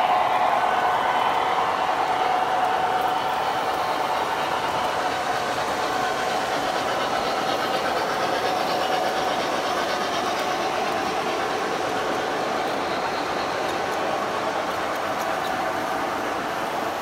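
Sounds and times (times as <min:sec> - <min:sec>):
model train wheels clattering: 0:02.0 - 0:17.0.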